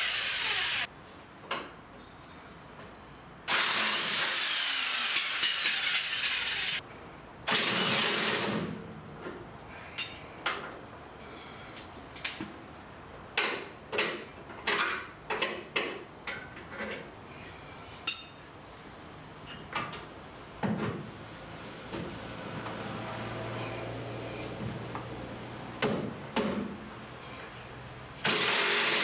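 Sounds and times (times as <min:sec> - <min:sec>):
handheld power tool whining: 0:00.0 - 0:00.9, 0:03.5 - 0:06.8, 0:28.2 - 0:29.0.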